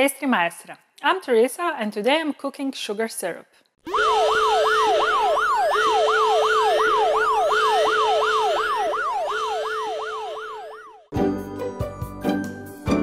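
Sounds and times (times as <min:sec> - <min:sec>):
siren yelping: 0:03.9 - 0:11.1
music: 0:11.1 - 0:13.0.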